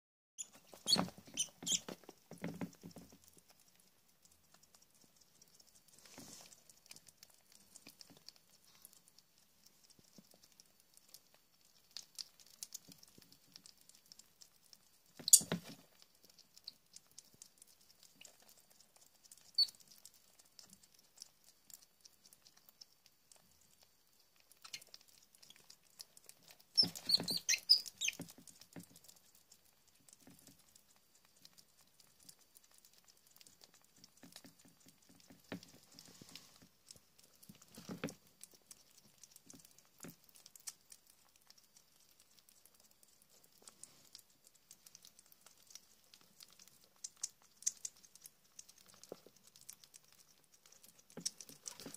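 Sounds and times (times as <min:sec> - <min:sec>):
high-pitched squeaks: 0:00.4 - 0:02.0, 0:15.2 - 0:15.5, 0:26.8 - 0:28.2
animals feeding smacking and clicking: 0:00.4 - 0:51.9.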